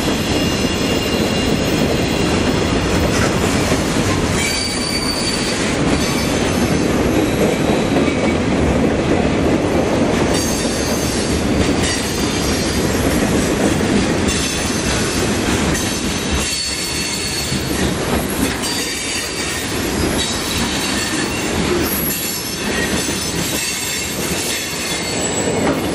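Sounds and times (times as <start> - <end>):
freight cars rolling on rails: 0.0 - 25.9
wheels squealing in high tones: 0.2 - 2.2, 4.4 - 6.5, 16.4 - 17.8, 18.4 - 25.8.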